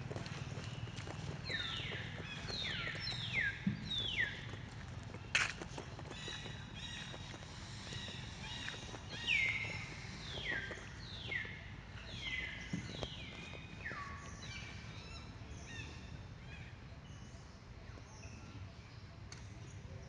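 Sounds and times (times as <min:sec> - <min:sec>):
outdoor background noise: 0:00.0 - 0:20.0.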